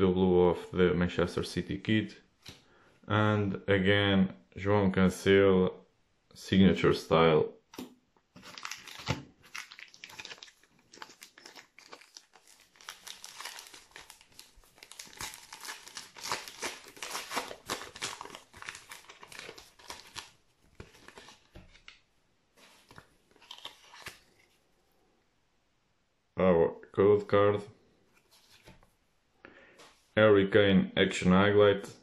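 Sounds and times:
card pack wrapper tearing and crinkling: 8.4s - 22.0s, 22.8s - 24.4s.

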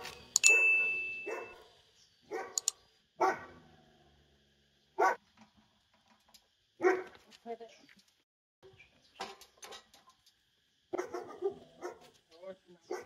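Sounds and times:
dog barking: 0.5s - 1.7s, 2.3s - 3.6s, 5.0s - 5.2s, 6.8s - 7.2s, 10.9s - 12.2s
sharp clicks: 2.5s - 2.8s.

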